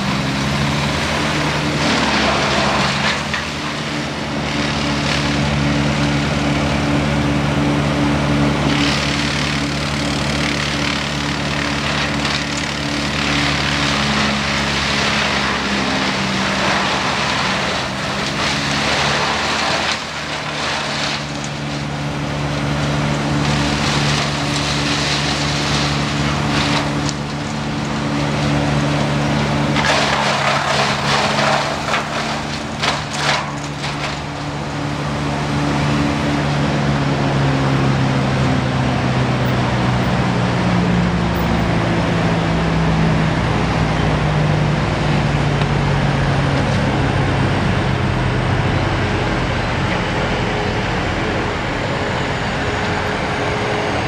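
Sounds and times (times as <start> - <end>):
wood chipper engine running: 0.0 - 54.0
branches being chipped: 8.6 - 36.1.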